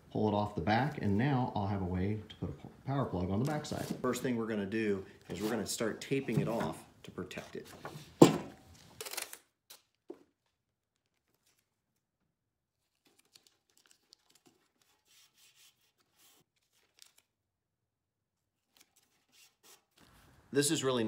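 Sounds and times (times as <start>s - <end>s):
tape rubbing and crinkling: 12.8s - 17.3s, 18.6s - 20.3s.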